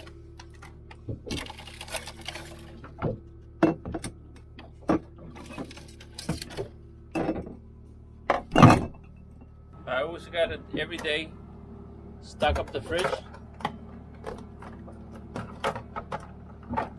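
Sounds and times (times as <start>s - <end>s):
plastic bottles crinkling: 0.0s - 3.0s
steady low hum: 0.0s - 16.9s.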